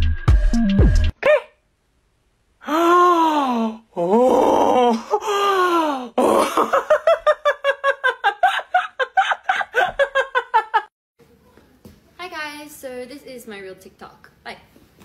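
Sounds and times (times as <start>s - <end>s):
man laughing loudly: 6.2s - 10.9s.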